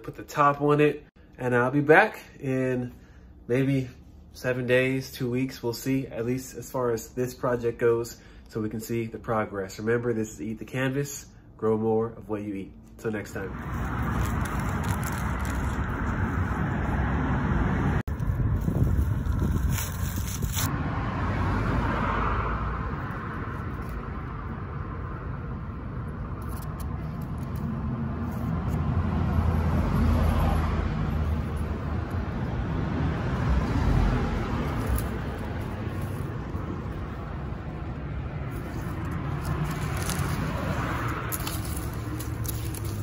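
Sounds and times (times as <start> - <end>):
road traffic rumble: 12.8 - 43.0
vehicles passing: 12.8 - 43.0.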